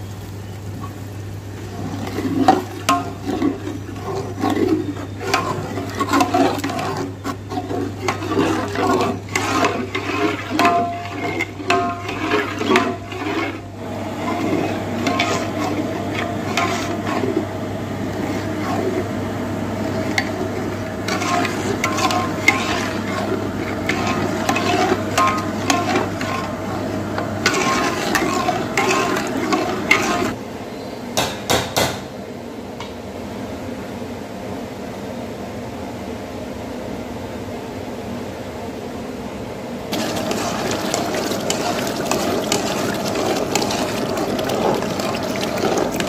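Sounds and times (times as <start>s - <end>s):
steady background hum: 0.0s - 46.0s
ladle stirring liquid in metal pot: 1.6s - 30.4s, 39.9s - 46.0s.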